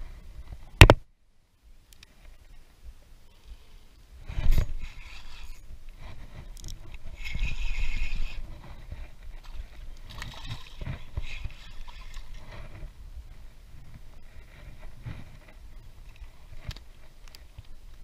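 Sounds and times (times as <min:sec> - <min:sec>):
clothing rubbing against microphone: 0:04.2 - 0:15.7.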